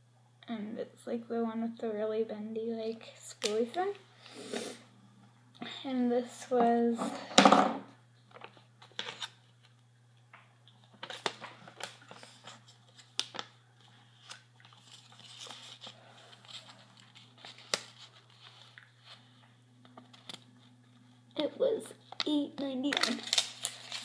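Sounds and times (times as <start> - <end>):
paper receipt crinkling: 10.8 - 19.3, 22.2 - 24.0.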